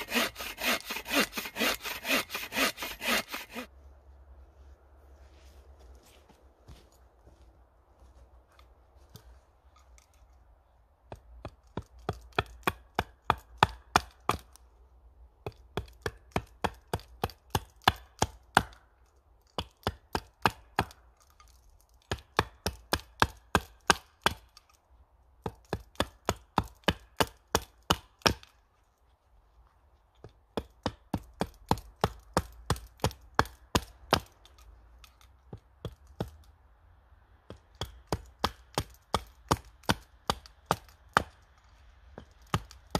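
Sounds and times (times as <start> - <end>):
axe chopping wooden pole: 0.0 - 3.7, 11.0 - 14.6, 15.4 - 18.9, 19.5 - 21.1, 22.0 - 24.7, 25.4 - 28.6, 30.2 - 36.5, 37.4 - 42.9.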